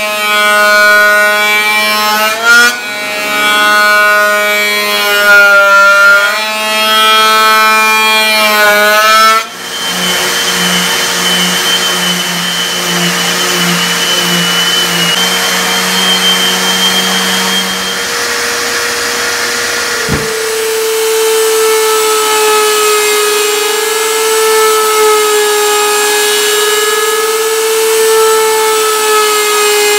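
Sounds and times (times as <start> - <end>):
orbit sander running: 0.0 - 29.9
thickness planer cutting wood: 0.0 - 29.9
router spinning: 9.4 - 24.8.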